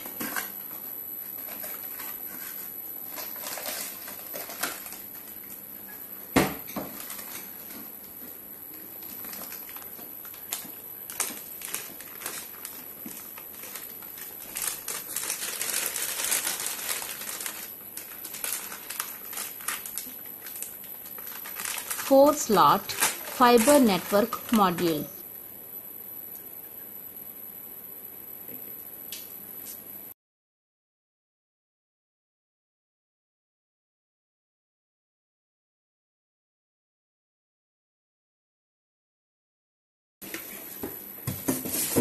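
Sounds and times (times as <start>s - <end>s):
plastic bag crinkling: 1.3s - 5.5s, 6.7s - 7.8s, 9.0s - 25.2s.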